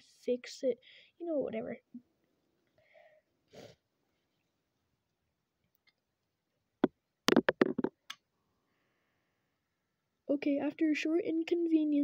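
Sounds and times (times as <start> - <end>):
plastic bricks clicking: 7.3 - 7.9.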